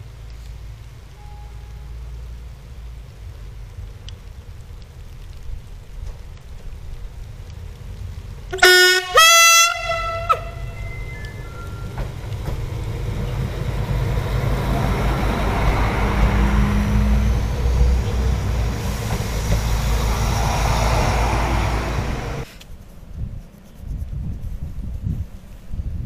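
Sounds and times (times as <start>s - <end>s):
train engine drone: 0.0s - 22.7s
faint wind: 0.0s - 26.0s
wheels rushing on rails: 0.0s - 26.0s
steady tone: 9.8s - 22.5s.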